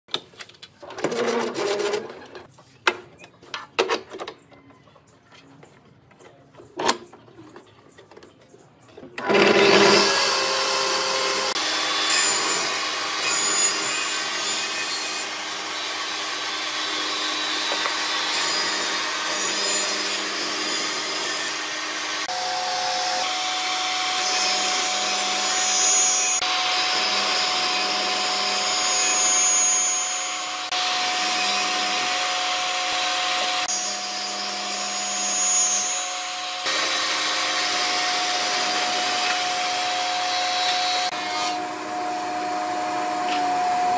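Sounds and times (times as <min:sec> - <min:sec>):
band saw cutting wood: 0:09.2 - 0:43.9
power saw cutting wood: 0:09.2 - 0:43.9.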